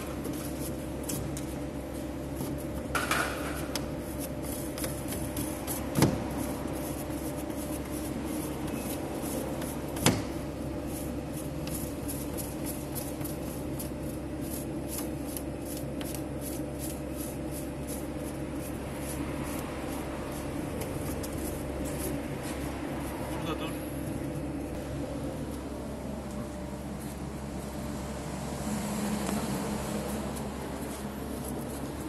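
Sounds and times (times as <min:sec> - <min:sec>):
steady machine hum: 0:00.0 - 0:32.0.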